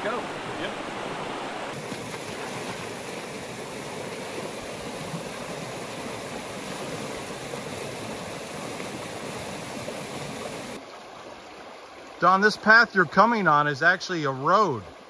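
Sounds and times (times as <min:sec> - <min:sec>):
river rushing over rocks: 0:00.0 - 0:11.1.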